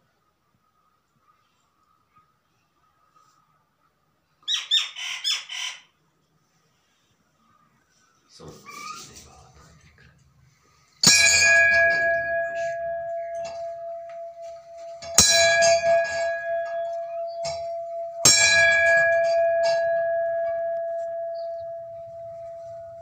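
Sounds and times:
temple bell ringing: 0:11.0 - 0:23.0.

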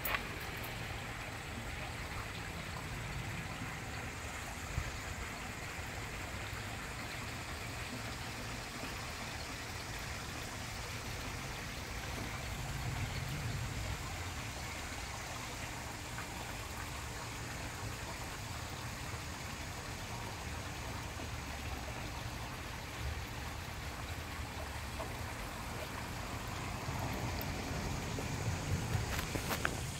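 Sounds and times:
steady rushing noise: 0:26.1 - 0:29.9.

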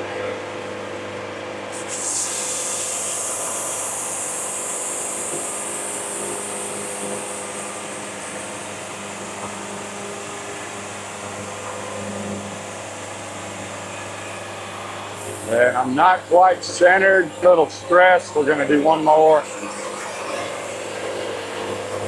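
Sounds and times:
sawmill running hum: 0:00.0 - 0:22.0
band blade hissing in wood: 0:01.8 - 0:06.2.

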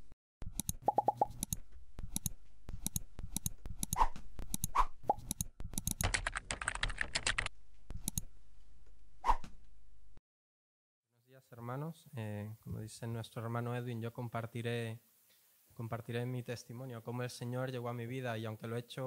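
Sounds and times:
computer mouse clicks: 0:00.5 - 0:08.3
keyboard typing: 0:00.5 - 0:08.3.

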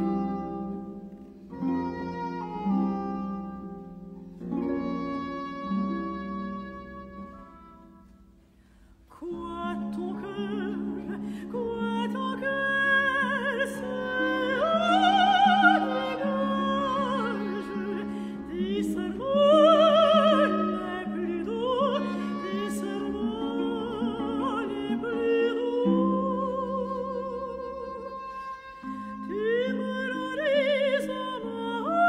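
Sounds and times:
operatic soprano singing: 0:09.1 - 0:32.0.

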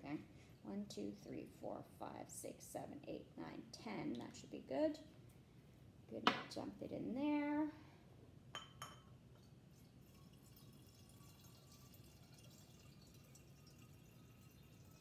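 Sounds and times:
water trickling into a bottle: 0:09.4 - 0:15.0.

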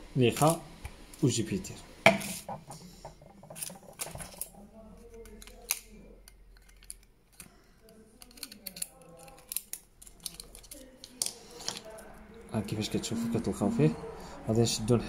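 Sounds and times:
plastic parts clicking on stone: 0:05.1 - 0:11.9.

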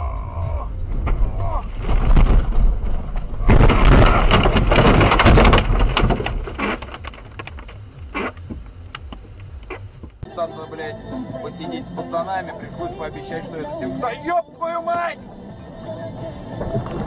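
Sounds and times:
scattered knocks and cracks: 0:00.9 - 0:07.9
car crashing through snow and brush: 0:00.9 - 0:08.4.

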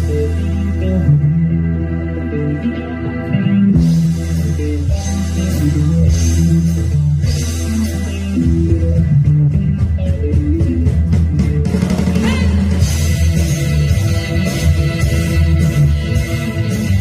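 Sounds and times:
bass guitar: 0:00.0 - 0:17.0
electric guitar: 0:00.0 - 0:17.0
drum kit beat: 0:03.8 - 0:17.0.

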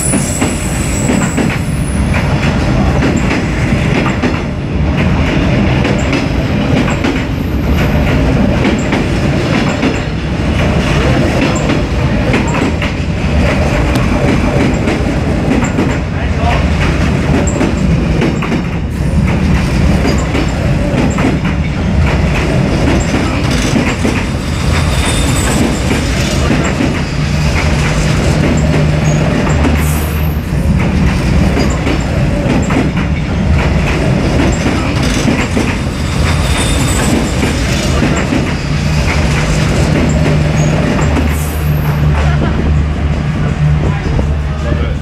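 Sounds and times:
train passing close by: 0:00.0 - 0:45.0.

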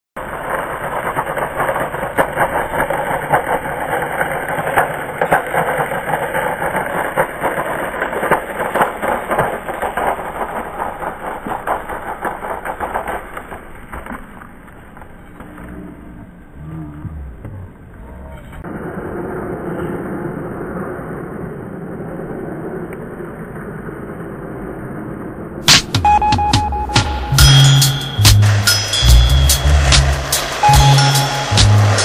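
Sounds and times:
skateboard clicks: 0:00.2 - 0:16.3
skateboard wheels rumbling on pavement: 0:00.2 - 0:20.4.

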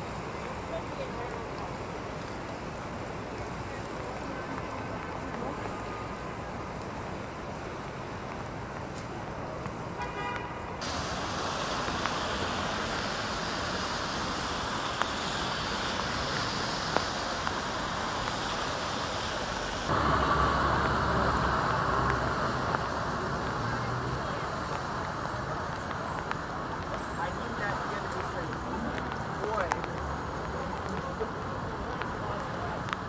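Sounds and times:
low traffic rumble: 0:00.0 - 0:33.0
tyre hiss on wet pavement: 0:00.0 - 0:33.0
car engines running: 0:11.1 - 0:33.0.

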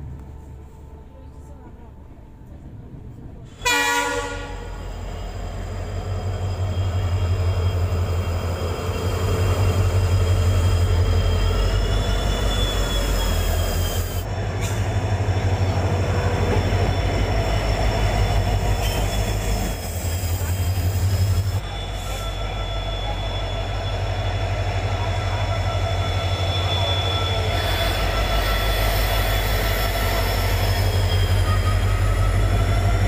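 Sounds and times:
diesel locomotive engine rumble: 0:00.0 - 0:33.0
rail noise: 0:00.0 - 0:33.0
train horn blast: 0:03.5 - 0:04.9
wheels squealing: 0:04.9 - 0:14.3, 0:15.7 - 0:33.0.

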